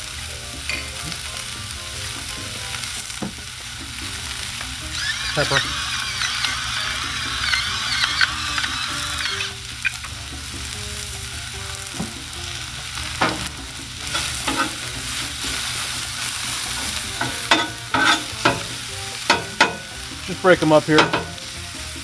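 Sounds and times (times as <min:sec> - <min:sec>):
onions sizzling on griddle: 0:00.0 - 0:22.0
metal spatula scraping griddle: 0:04.0 - 0:10.7, 0:11.3 - 0:22.0.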